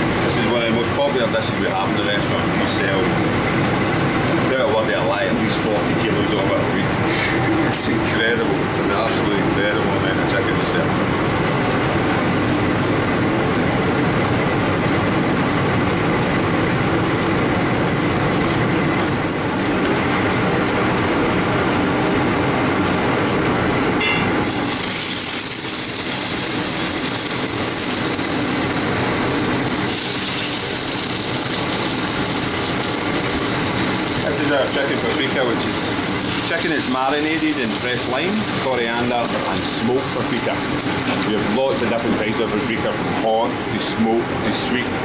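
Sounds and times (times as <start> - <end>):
chicken bubbling in deep-fat fryer: 0.0 - 45.0
chicken sizzling in frying pan: 24.4 - 44.0.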